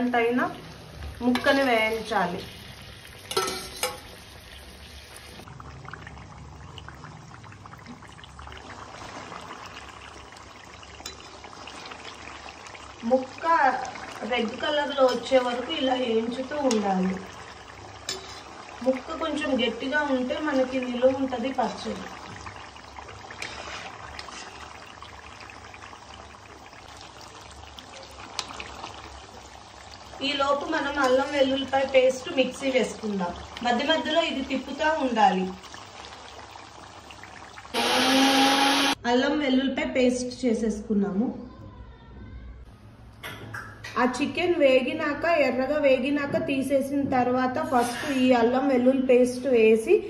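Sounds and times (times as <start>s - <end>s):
chicken deep-frying in hot oil: 0.0s - 39.0s.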